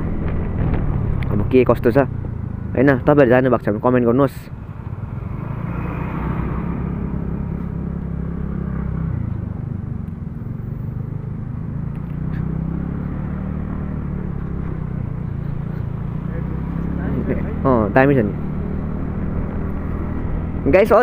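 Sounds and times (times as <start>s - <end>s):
road noise: 0.0s - 21.0s
scooter engine hum: 0.0s - 21.0s.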